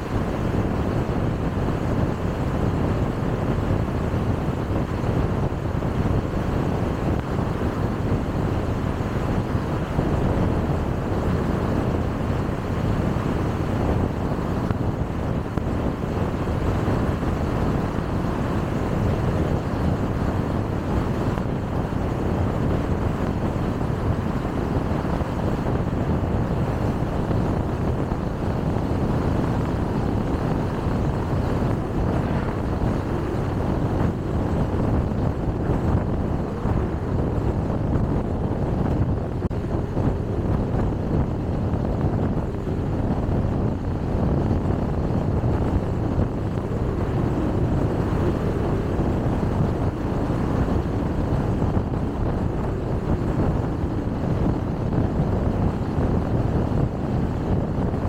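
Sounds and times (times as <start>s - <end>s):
wind noise from driving car: 0.0s - 58.0s.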